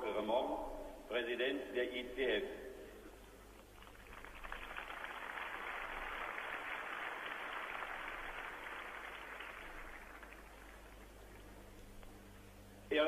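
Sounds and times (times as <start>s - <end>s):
distant crowd applauding: 3.7s - 11.7s.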